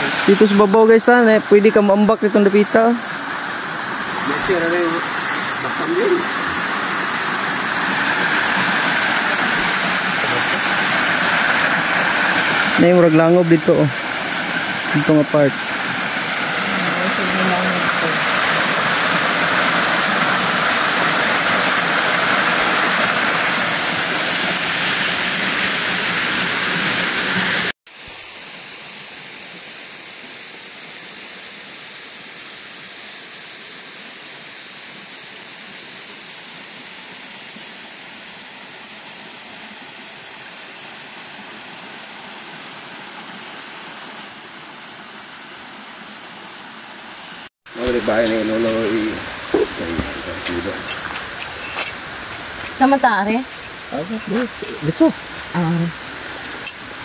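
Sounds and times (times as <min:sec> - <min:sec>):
waterfall rushing: 0:00.0 - 0:27.8, 0:42.5 - 0:57.0.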